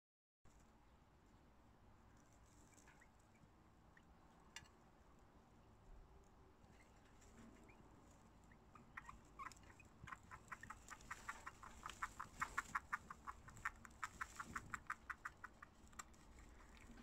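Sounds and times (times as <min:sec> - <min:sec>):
baby animals squeaking: 0:08.5 - 0:16.1.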